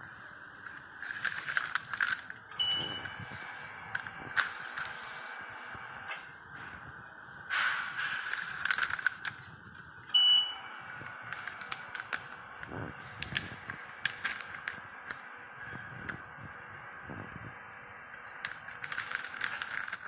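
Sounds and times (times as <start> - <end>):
faint conveyor whine: 0.0 - 20.0
foil packets crackling: 0.6 - 2.5, 3.2 - 5.2, 8.0 - 9.8, 10.9 - 15.2, 18.2 - 20.0
metal detector beep: 2.6 - 3.2, 10.1 - 10.7.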